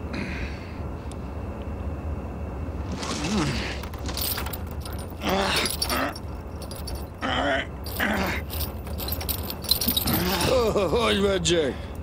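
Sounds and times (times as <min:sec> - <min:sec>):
metal cuffs and chain rattling: 0:03.8 - 0:07.2, 0:07.8 - 0:11.2
man grunting and straining: 0:07.2 - 0:08.5, 0:10.0 - 0:10.8.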